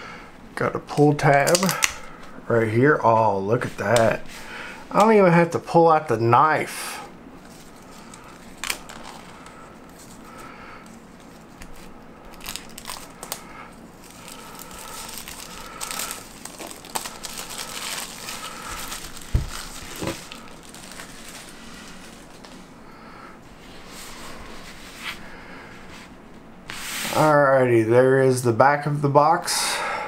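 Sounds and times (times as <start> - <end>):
plastic wrap crinkling: 1.0 - 2.1, 7.4 - 22.6.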